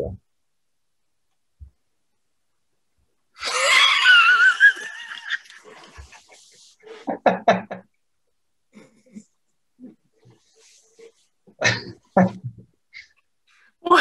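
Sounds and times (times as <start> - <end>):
high squealing laughter: 3.4 - 6.0.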